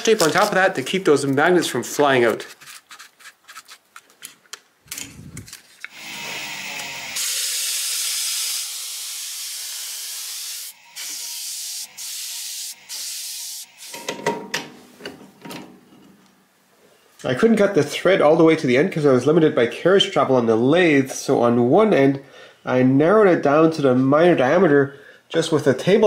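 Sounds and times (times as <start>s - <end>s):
wood router hissing: 5.9s - 14.0s.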